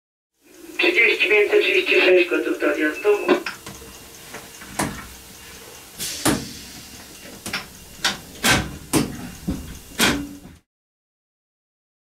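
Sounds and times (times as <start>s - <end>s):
mechanical clicks in train cab: 3.1s - 10.6s.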